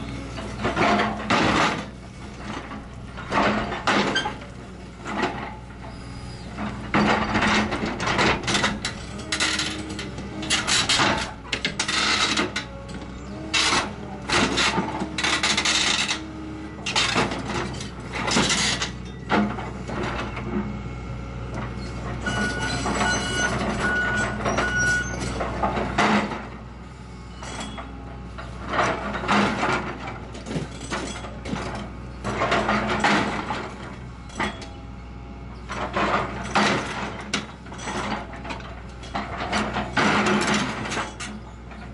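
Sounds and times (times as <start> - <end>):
diesel engine running: 0.0 - 41.9
steel crunching and clanking: 0.0 - 41.9
high metal squeal: 5.8 - 7.4, 21.8 - 25.4.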